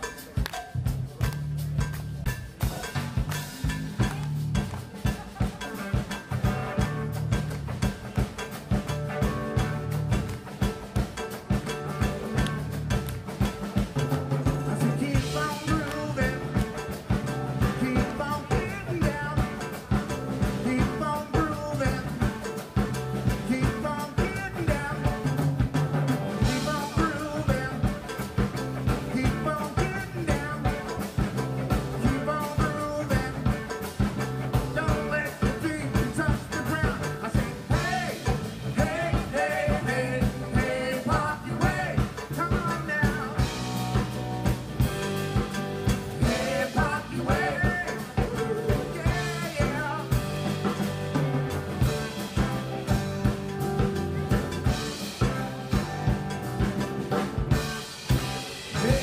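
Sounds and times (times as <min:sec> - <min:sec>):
bass: 0:00.0 - 0:59.0
congas: 0:00.0 - 0:59.0
drum kit beat: 0:00.0 - 0:59.0
guitar: 0:00.0 - 0:59.0
keyboards: 0:00.0 - 0:59.0
person singing: 0:14.6 - 0:17.0, 0:17.6 - 0:22.6, 0:23.2 - 0:25.4, 0:26.4 - 0:28.2, 0:29.0 - 0:31.2, 0:31.9 - 0:33.8, 0:34.7 - 0:43.6, 0:46.2 - 0:50.5, 0:58.7 - 0:59.0.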